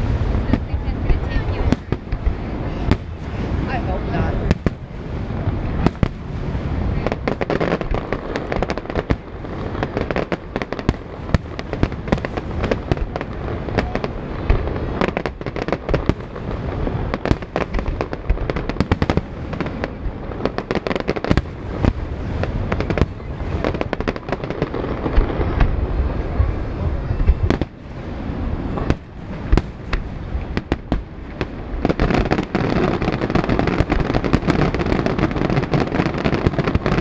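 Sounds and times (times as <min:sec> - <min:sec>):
continuous low rumble: 0:00.0 - 0:37.0
fireworks bangs: 0:00.0 - 0:37.0.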